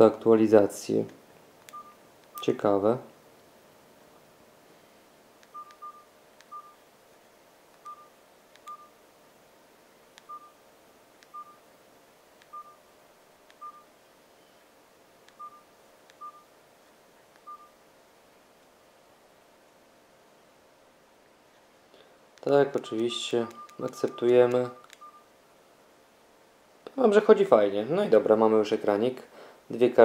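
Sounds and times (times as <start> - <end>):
phone keypad beeps: 1.7 - 2.0, 5.5 - 6.8, 7.8 - 8.9, 10.2 - 10.6, 11.3 - 11.6, 12.5 - 12.8, 13.6 - 13.9, 15.4 - 16.5, 17.4 - 17.8, 22.8 - 25.3.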